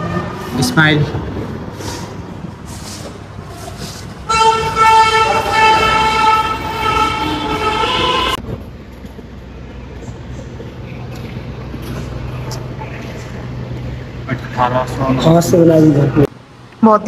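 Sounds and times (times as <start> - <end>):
horn-like sustained tone: 4.2 - 8.4.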